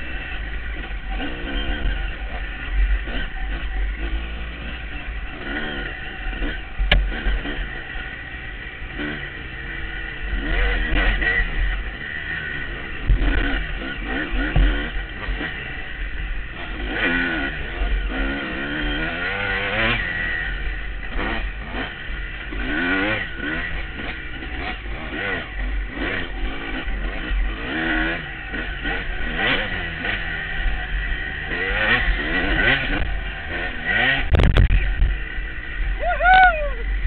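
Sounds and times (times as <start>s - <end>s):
dirt bike engine revving: 0.0s - 37.0s
wind rumble on microphone: 34.3s - 35.2s.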